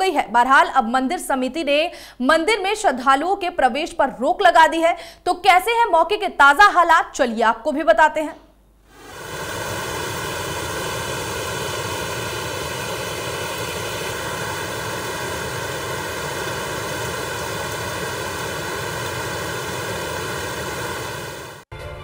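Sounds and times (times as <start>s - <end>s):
rushing floodwater: 9.0s - 21.6s.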